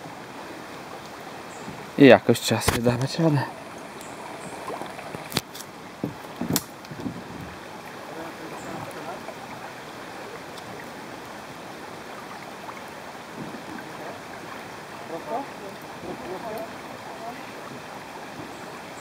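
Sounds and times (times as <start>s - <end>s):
fast-flowing river water: 0.0s - 19.0s.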